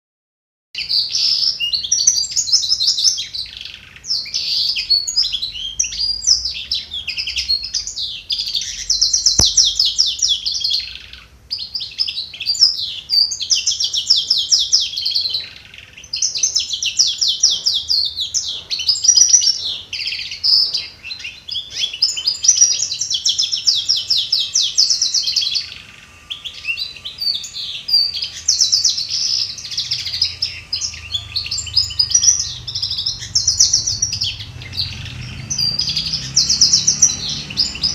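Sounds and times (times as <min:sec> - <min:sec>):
canary singing trills: 0:00.8 - 0:37.9
sharp click: 0:09.3 - 0:09.9.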